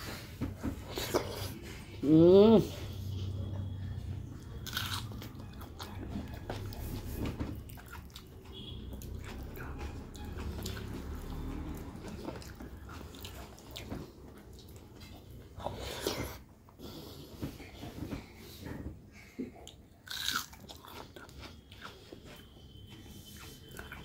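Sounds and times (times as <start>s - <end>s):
chewing rice: 4.0s - 16.4s, 19.6s - 24.0s.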